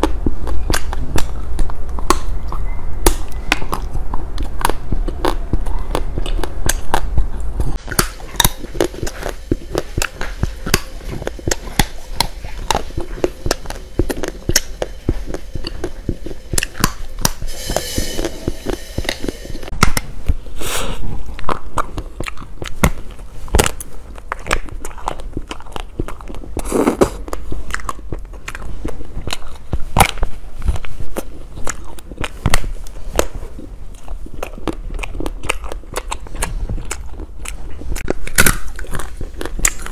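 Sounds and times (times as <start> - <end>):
crunching and chewing sweets: 0.0 - 9.3, 21.5 - 39.9.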